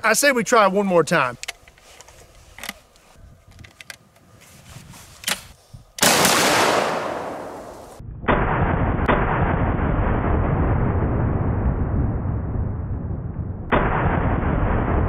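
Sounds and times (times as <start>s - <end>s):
loud shotgun shot: 6.0s - 10.3s, 13.7s - 15.0s
duller shotgun blast: 6.0s - 12.2s, 13.6s - 15.0s.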